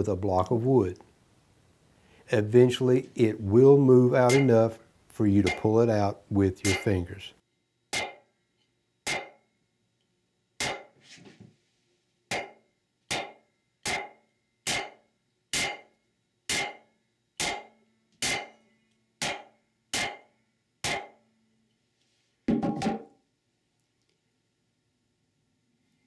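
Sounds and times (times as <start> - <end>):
wood block knocking on metal: 22.5 - 23.1.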